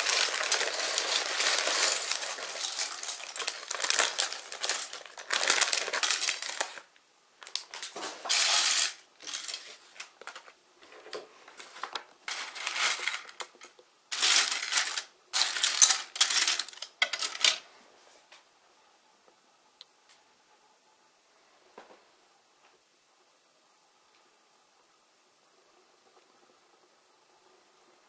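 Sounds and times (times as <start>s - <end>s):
plastic bricks clattering onto plate: 0.0s - 17.6s.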